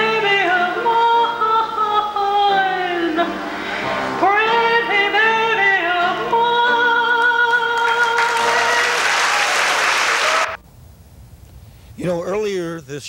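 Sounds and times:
woman singing: 0.0s - 3.5s, 4.2s - 9.0s
musical accompaniment: 0.0s - 9.5s
audience applause: 7.5s - 10.6s.

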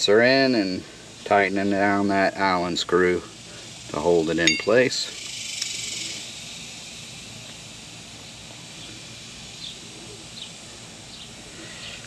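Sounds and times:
steady high hiss: 0.0s - 12.0s.

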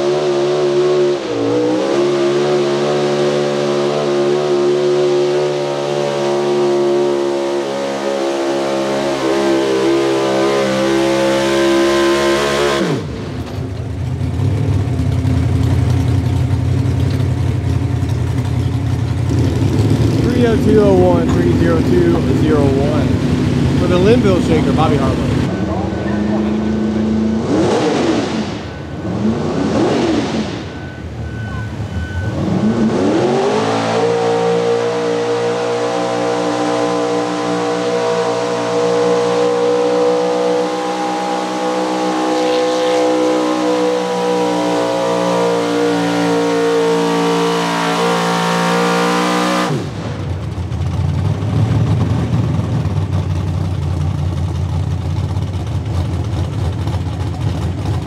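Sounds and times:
truck engine revving high: 0.0s - 15.9s, 18.3s - 53.2s
rough low engine rumble: 12.9s - 27.4s, 49.8s - 58.0s.

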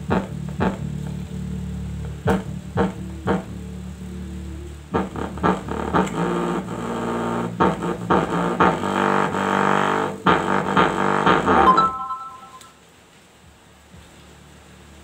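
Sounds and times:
bass-boosted electronic song: 0.0s - 12.8s.

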